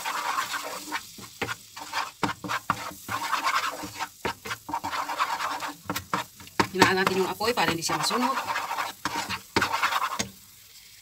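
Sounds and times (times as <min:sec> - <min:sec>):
spatula scraping frying pan: 0:00.0 - 0:10.4
light sizzle: 0:00.0 - 0:11.0.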